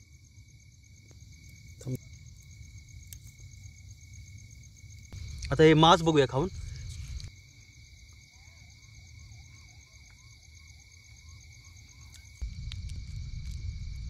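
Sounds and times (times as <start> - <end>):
night insects chirring: 0.0 - 14.0
low rumble: 12.4 - 14.0.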